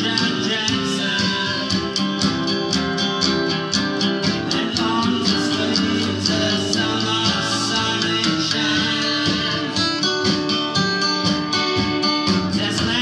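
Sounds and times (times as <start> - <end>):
man singing into a microphone: 0.0 - 2.3, 4.4 - 10.2, 12.4 - 13.0
guitar accompaniment: 0.0 - 13.0.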